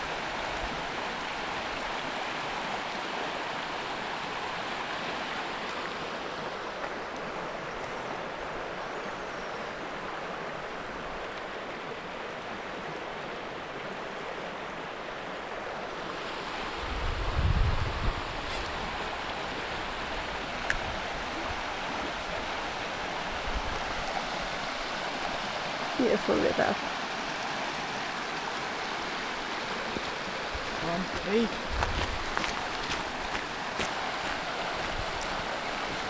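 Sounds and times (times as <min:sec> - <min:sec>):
river rushing over stones: 0:00.0 - 0:36.0
wind buffeting microphone: 0:16.6 - 0:22.6, 0:30.0 - 0:36.0.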